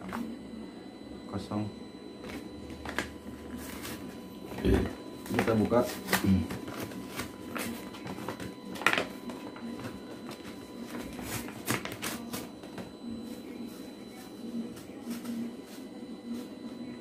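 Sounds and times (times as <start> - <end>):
paper rustling: 2.2 - 4.1, 5.2 - 16.6.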